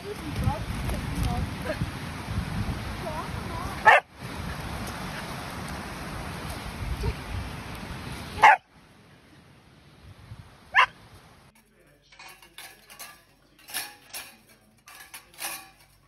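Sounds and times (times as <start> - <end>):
dog barking: 3.8 - 4.1, 8.4 - 8.6, 10.7 - 11.0
metal dog bowls clinking: 11.6 - 16.0.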